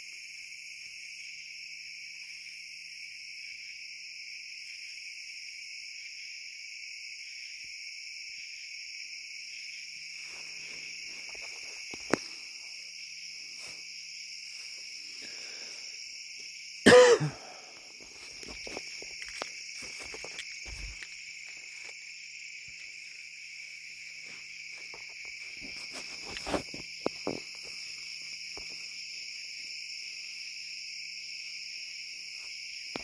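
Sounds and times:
crickets and insects chirping: 0:00.0 - 0:33.0
person coughing: 0:16.8 - 0:17.6.

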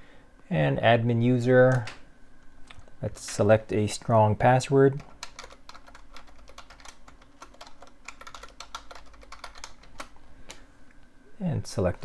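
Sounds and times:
computer keyboard typing: 0:05.0 - 0:10.2.

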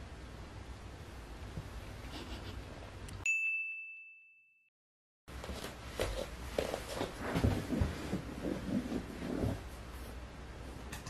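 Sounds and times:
high electronic ding: 0:03.3 - 0:04.7
soft knocks and shuffles: 0:05.4 - 0:10.3.

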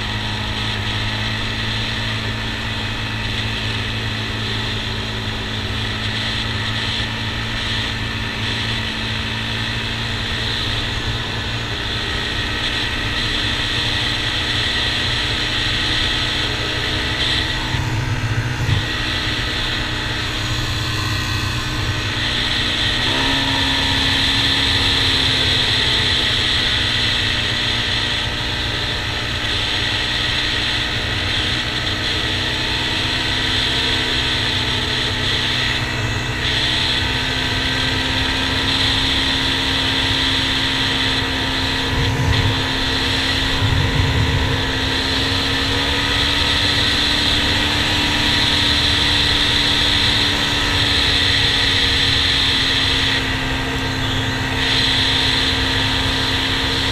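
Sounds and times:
quad engine running: 0:00.0 - 0:56.9
wind rumble on microphone: 0:12.4 - 0:23.1, 0:40.3 - 0:56.9.

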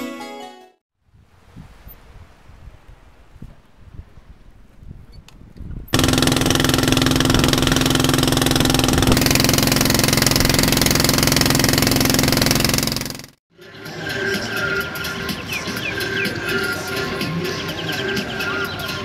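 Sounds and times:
boat engine running: 0:05.9 - 0:13.4.

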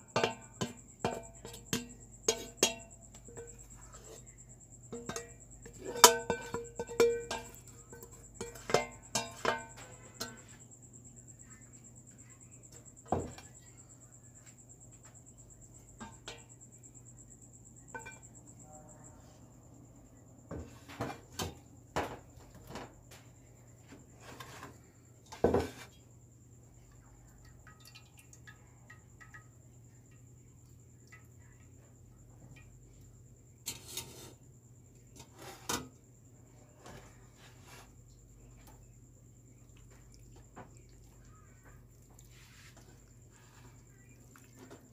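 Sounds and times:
metal pot and strainer clanking: 0:00.1 - 0:04.2, 0:04.9 - 0:10.6, 0:17.9 - 0:18.2, 0:33.6 - 0:34.4.

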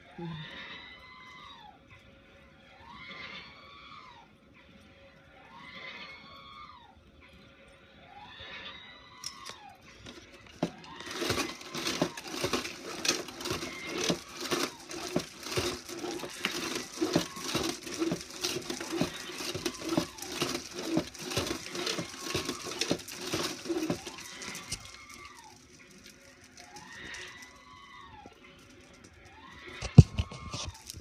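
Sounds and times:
bamboo bead curtain clattering: 0:09.2 - 0:31.0.

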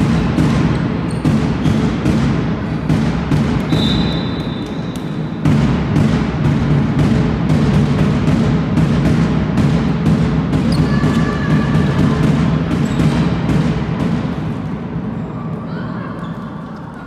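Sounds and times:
whistle blast: 0:03.7 - 0:05.4
thuds and knocks: 0:05.4 - 0:14.4.

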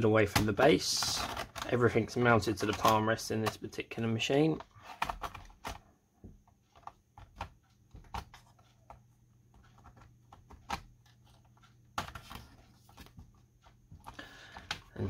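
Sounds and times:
plastic laptop case clicking: 0:04.6 - 0:05.8, 0:06.7 - 0:10.9, 0:12.0 - 0:13.2.

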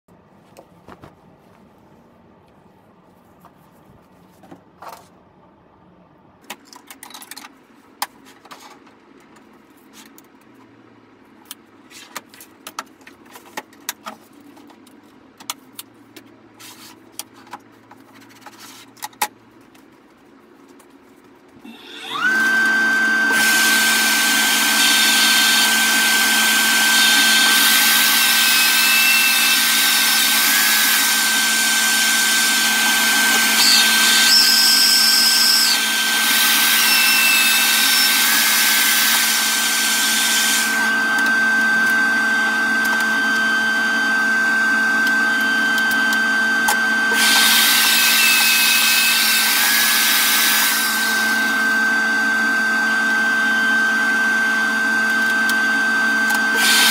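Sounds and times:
table saw motor whine: 0:21.6 - 0:56.9
saw blade cutting plastic: 0:21.7 - 0:42.0, 0:46.7 - 0:51.4, 0:56.3 - 0:56.9.

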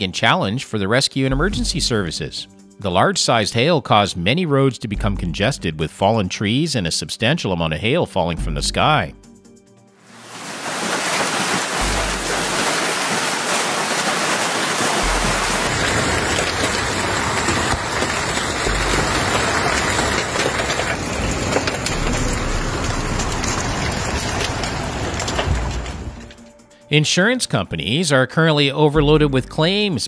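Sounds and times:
hail splashing into water: 0:10.0 - 0:26.6
hail hitting paving: 0:10.1 - 0:26.5.

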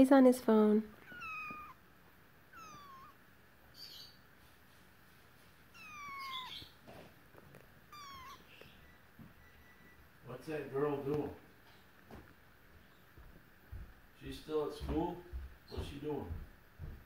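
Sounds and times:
kitten mewing: 0:01.0 - 0:01.8, 0:02.5 - 0:03.2, 0:05.7 - 0:06.7, 0:07.8 - 0:10.0.

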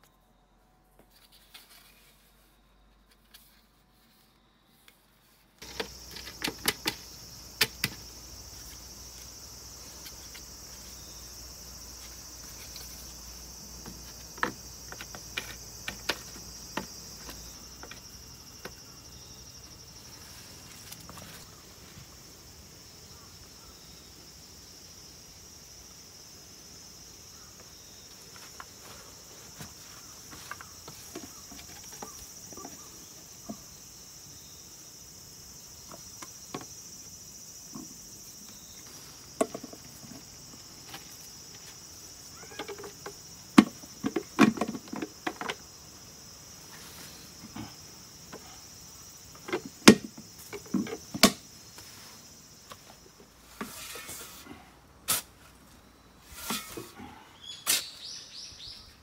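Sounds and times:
shovel scraping and tossing soil: 0:01.0 - 0:07.0, 0:11.9 - 0:18.0, 0:53.4 - 0:58.2
insects chirring: 0:01.4 - 0:59.0
plastic lids clicking and knocking: 0:05.6 - 0:08.1, 0:42.4 - 0:45.7.

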